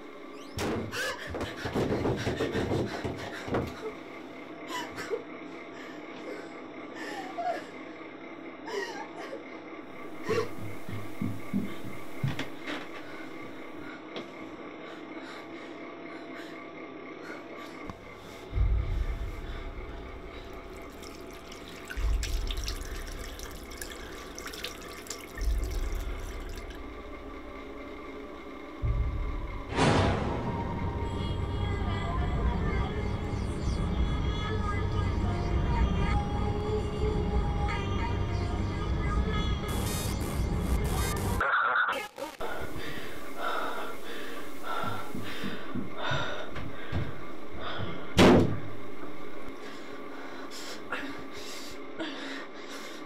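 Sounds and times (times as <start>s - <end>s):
deep low booms: 18.0s - 24.3s, 25.4s - 34.1s
splashes and drips: 20.3s - 27.1s
tap water running: 20.3s - 27.7s
woman gasping breaths: 42.5s - 48.2s.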